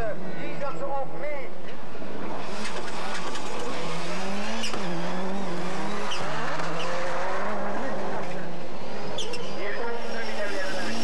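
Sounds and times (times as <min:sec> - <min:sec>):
racing car engines: 0:00.0 - 0:11.0
tyre and track noise: 0:02.3 - 0:05.0.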